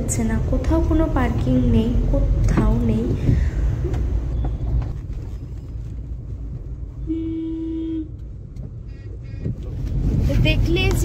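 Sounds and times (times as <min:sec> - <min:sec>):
car engine: 0:00.0 - 0:11.0
city traffic rumble: 0:00.0 - 0:11.0
vehicle horn: 0:07.0 - 0:08.2.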